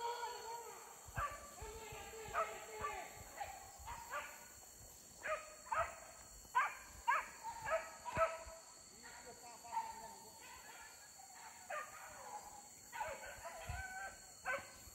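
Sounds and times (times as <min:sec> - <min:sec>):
dogs baying: 0:05.2 - 0:08.5.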